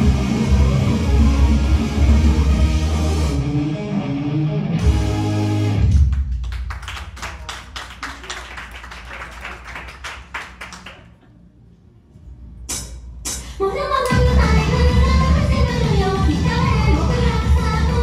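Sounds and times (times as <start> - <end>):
pop music with electric guitar: 0.0 - 5.9, 14.1 - 18.0.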